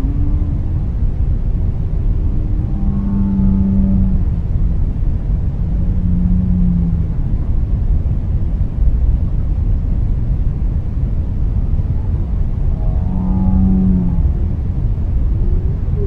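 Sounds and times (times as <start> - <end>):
whale calls: 0.0 - 1.2, 2.0 - 4.4, 5.6 - 7.3, 12.6 - 16.0
low rumble of noise: 0.0 - 16.0.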